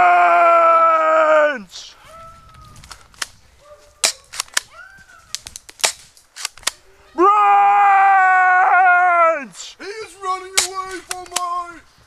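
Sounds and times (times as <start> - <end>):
person shouting: 0.0 - 2.2, 7.0 - 9.6
airsoft guns popping: 4.0 - 6.8.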